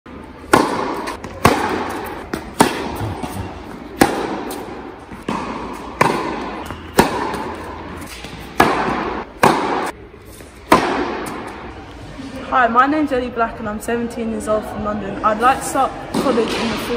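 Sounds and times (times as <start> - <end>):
tennis ball hit with racket: 0.4 - 11.7.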